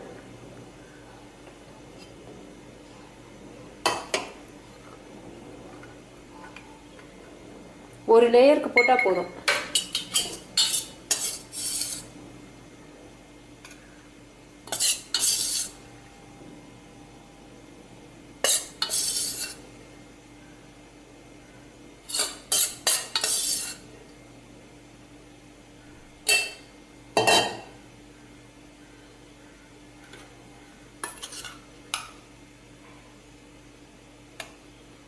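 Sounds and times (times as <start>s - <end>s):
spoon scraping a steel bowl: 9.8s - 12.1s, 14.7s - 15.8s, 18.4s - 19.6s, 22.1s - 23.8s, 31.0s - 31.6s.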